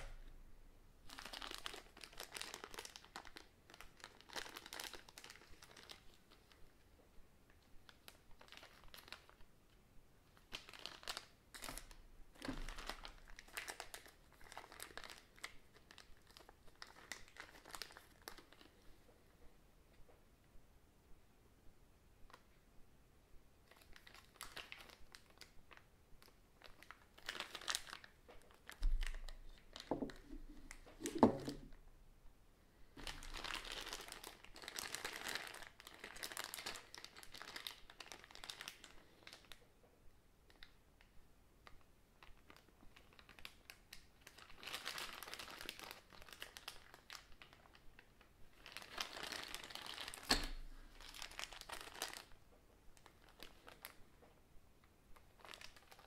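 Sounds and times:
plastic bags crinkling: 1.1 - 6.1, 10.5 - 18.8, 23.8 - 31.8, 33.0 - 39.6, 42.4 - 52.3, 53.0 - 54.0, 55.3 - 56.0
parts knocking on wooden table: 29.9 - 31.7.

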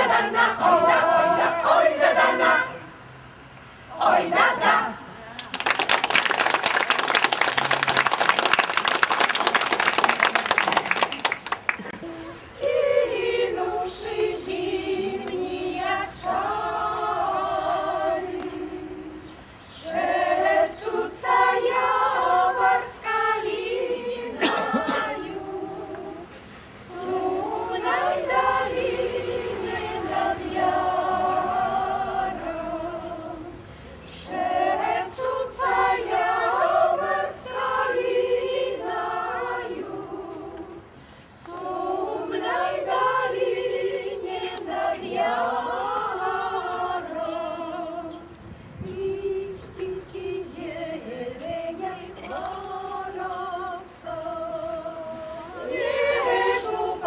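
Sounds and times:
choir singing a cappella: 0.0 - 3.1, 3.8 - 5.2, 12.0 - 57.0.

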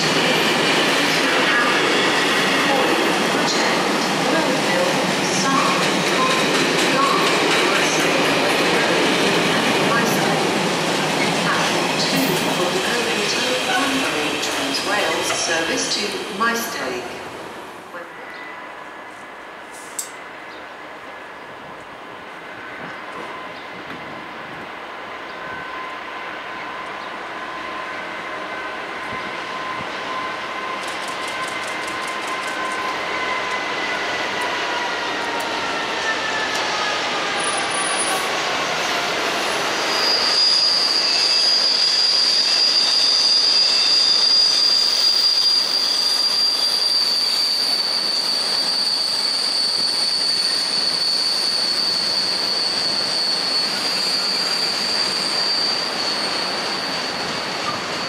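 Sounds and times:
diesel locomotive engine: 0.0 - 58.0
high-pitched wheel squeal: 39.7 - 58.0.

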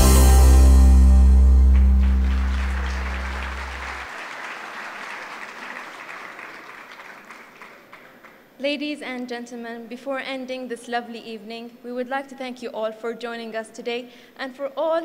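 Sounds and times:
film music closing chord: 0.0 - 4.1
audience applauding: 1.4 - 8.6.

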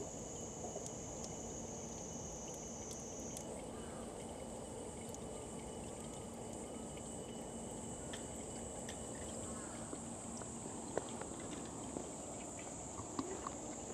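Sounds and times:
high insect buzz: 0.0 - 3.4
water drips into stone basin: 0.0 - 13.9.

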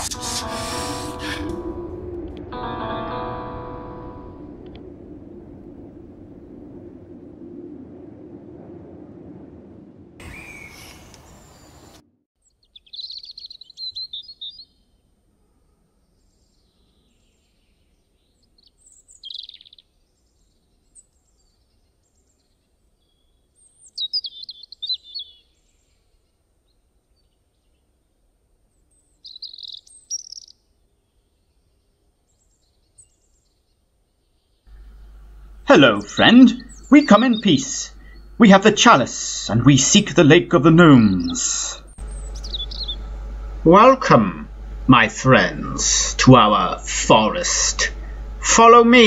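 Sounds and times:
rushing noise: 0.0 - 12.0, 34.7 - 49.0
songbirds chirping: 10.2 - 49.0.

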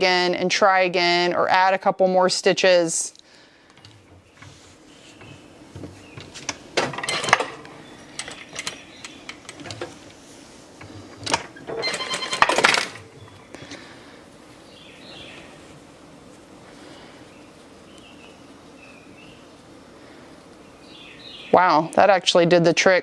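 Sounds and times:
fabric and sewing tools rustling: 3.7 - 14.1.

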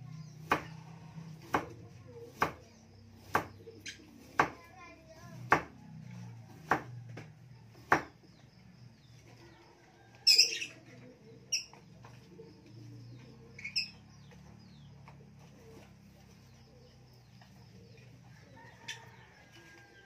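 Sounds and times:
knife chopping on wooden block: 0.4 - 0.7, 3.2 - 3.6, 4.2 - 4.6, 5.4 - 5.8, 6.6 - 8.2.

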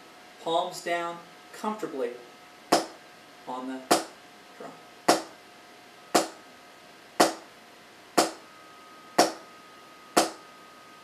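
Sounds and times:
drumstick hitting drum: 2.7 - 3.0, 3.9 - 4.2, 5.1 - 5.4, 6.2 - 6.4, 7.2 - 7.5, 8.2 - 8.4, 9.2 - 9.4, 10.2 - 10.4.

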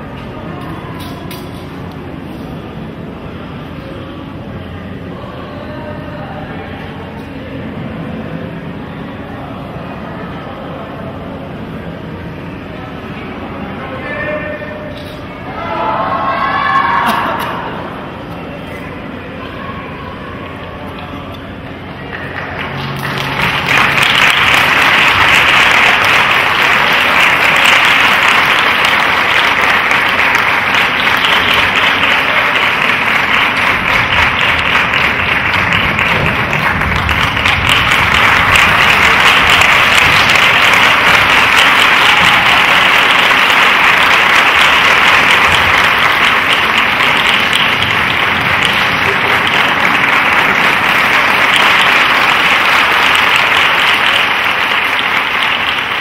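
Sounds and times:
audience applauding: 22.0 - 56.0.

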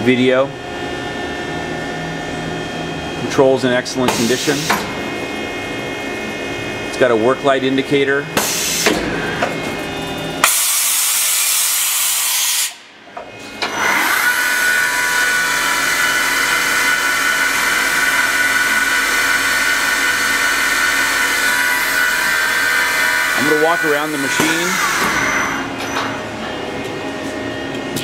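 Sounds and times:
spindle high whine: 14.8 - 28.0.

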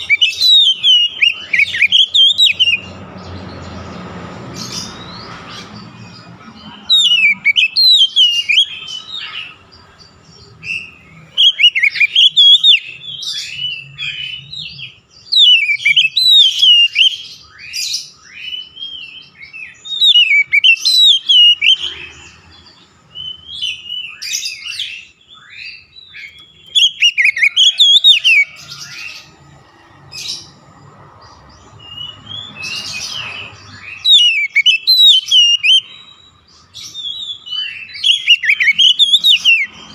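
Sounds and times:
bird singing whistled phrases: 0.0 - 2.9, 6.9 - 9.6, 10.6 - 22.0, 23.1 - 28.9, 31.8 - 39.8.

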